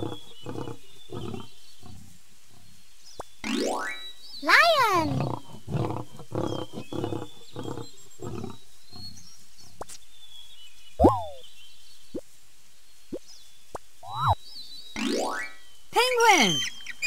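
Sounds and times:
lion roaring and grunting: 0.0s - 2.0s, 5.0s - 9.2s.

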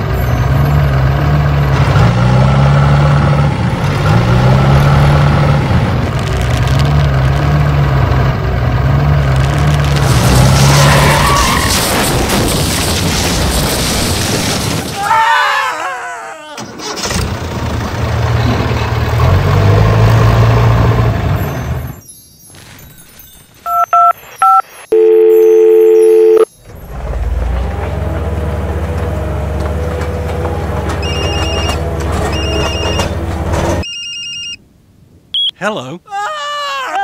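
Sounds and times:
high phone beeps: 23.7s - 26.5s, 33.8s - 34.6s, 35.4s - 35.6s
phone dial tone: 23.7s - 26.5s
phone keypad beeps: 23.7s - 26.5s, 33.8s - 34.6s, 35.4s - 35.6s
engine drone: 25.8s - 33.8s.

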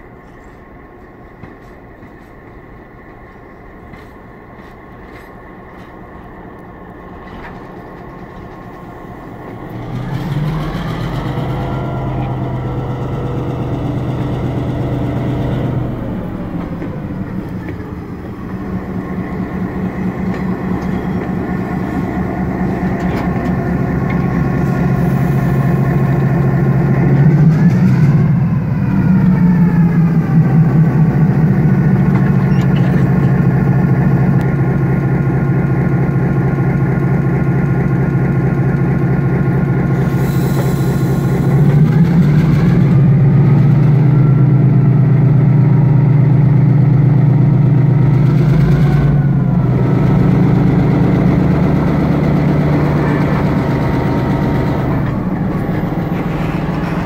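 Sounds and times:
diesel locomotive engine running: 0.0s - 57.0s
short air hisses: 40.0s - 41.5s.

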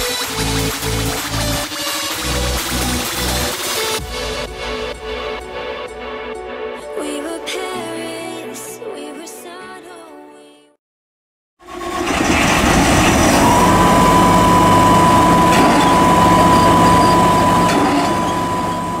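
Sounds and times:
combine harvester drone: 11.6s - 19.0s
high whine: 11.9s - 19.0s.

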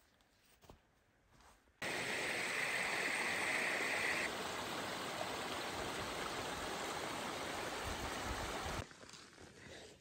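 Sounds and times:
stream trickling over rocks: 1.8s - 8.8s.

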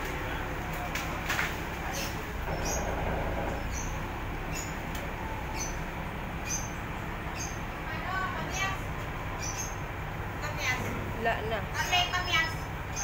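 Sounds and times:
diesel engine rumbling: 0.0s - 13.0s
short high squeaks: 2.4s - 4.0s.

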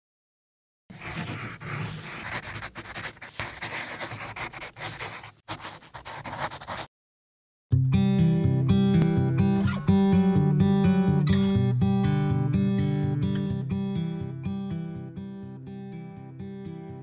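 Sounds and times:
pen scratching on paper: 0.9s - 6.9s.

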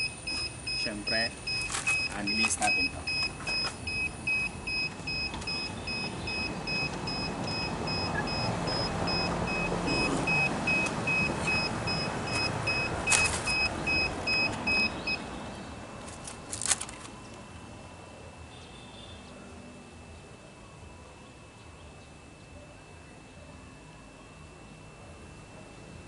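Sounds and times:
remote controller beeping: 0.0s - 15.2s.

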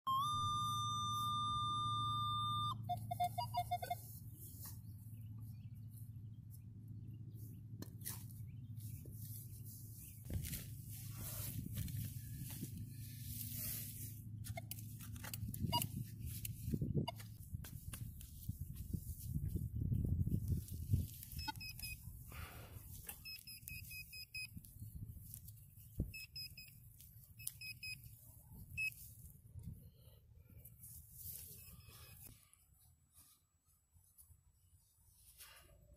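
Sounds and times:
metal detector high tone: 0.0s - 4.2s, 21.3s - 22.0s, 31.3s - 32.3s
metal detector short beeps: 0.1s - 4.2s, 15.6s - 16.0s, 16.7s - 17.3s, 21.3s - 22.0s, 23.0s - 24.6s, 26.1s - 29.0s, 31.4s - 32.3s
rustling and handling noise: 2.9s - 35.9s.

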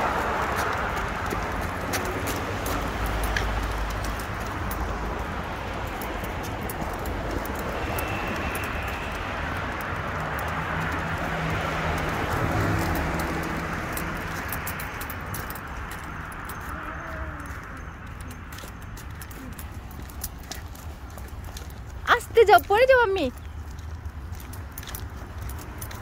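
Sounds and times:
clicking and jangling while walking: 0.0s - 26.0s
road traffic: 0.0s - 26.0s
car driving past: 7.1s - 15.6s.

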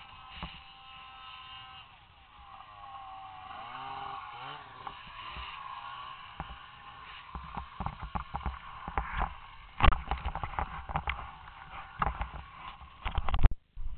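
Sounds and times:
faint snowmobile engine hum: 0.0s - 13.9s.

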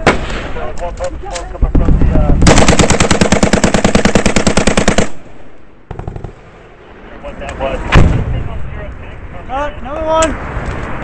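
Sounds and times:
automatic gunfire: 2.4s - 5.2s, 5.9s - 6.4s.

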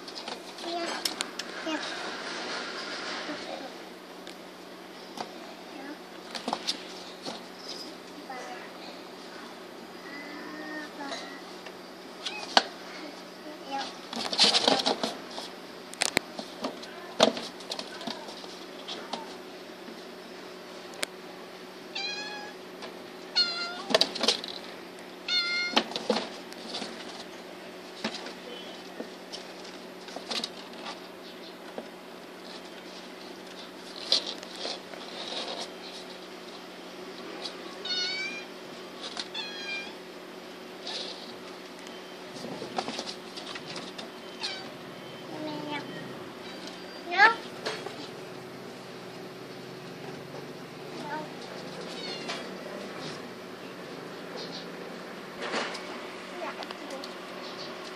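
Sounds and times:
kitten mewing: 23.4s - 23.9s, 25.3s - 25.8s
rustling: 32.3s - 37.7s
kittens scratching post: 32.3s - 39.9s, 50.9s - 53.4s.

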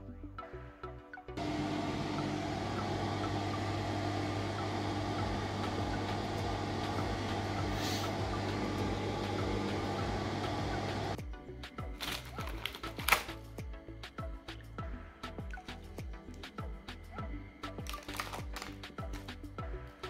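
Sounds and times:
ventilation fan rushing: 1.4s - 11.2s.

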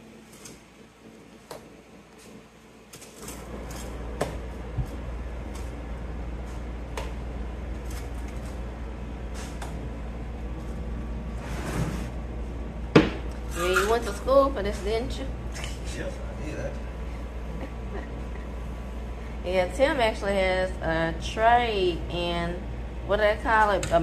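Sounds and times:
steady low hum: 0.0s - 24.0s
scrape: 11.4s - 12.2s
knocks: 12.9s - 13.2s.

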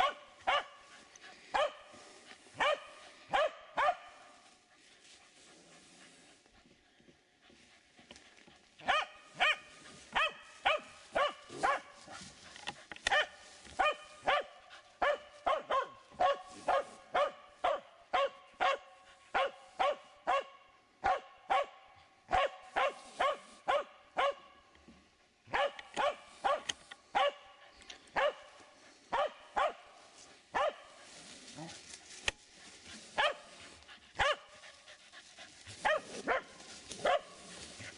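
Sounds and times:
dog barking sharply: 0.0s - 0.8s, 2.6s - 4.1s, 8.8s - 9.6s, 10.2s - 11.9s, 13.1s - 18.8s, 19.4s - 24.4s, 25.5s - 27.4s, 30.6s - 30.8s, 34.2s - 34.5s.

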